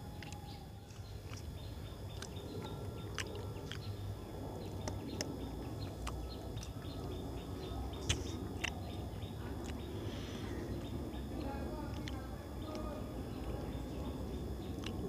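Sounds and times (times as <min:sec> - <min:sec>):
birds chirping: 0:00.0 - 0:15.0
man chewing food: 0:00.0 - 0:15.0.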